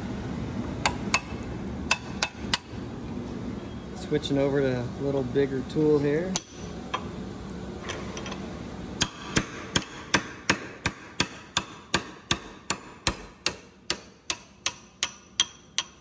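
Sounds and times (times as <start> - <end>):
hammer striking steel chisel: 9.0 - 16.0.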